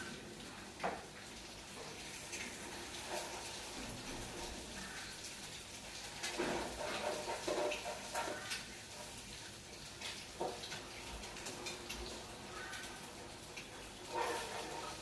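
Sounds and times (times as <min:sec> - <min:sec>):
metal spatula scraping pan: 0:06.3 - 0:09.2, 0:14.0 - 0:15.0.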